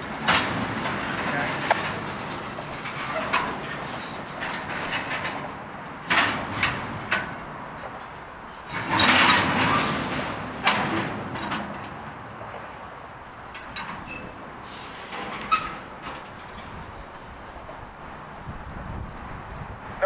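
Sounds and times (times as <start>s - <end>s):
rattling clatter: 0.0s - 7.4s, 8.0s - 12.0s
freight cars clanking: 0.0s - 20.0s.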